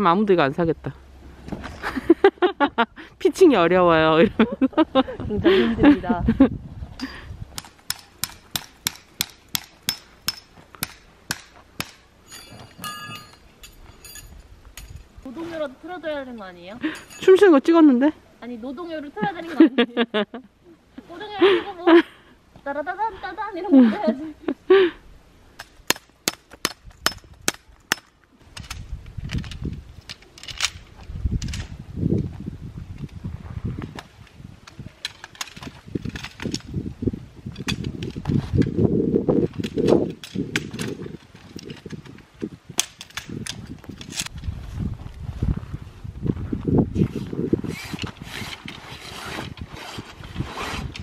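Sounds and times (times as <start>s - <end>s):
hammer striking tent peg: 7.6s - 12.0s.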